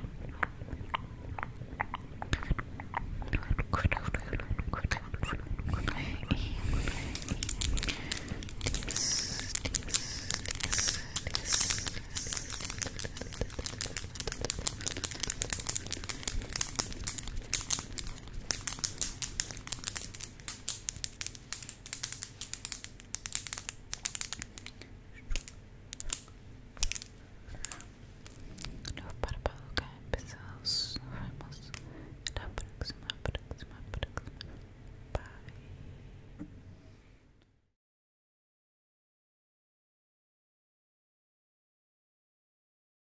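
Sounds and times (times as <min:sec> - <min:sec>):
crackling clicks close up: 0:07.1 - 0:29.6, 0:31.7 - 0:35.6.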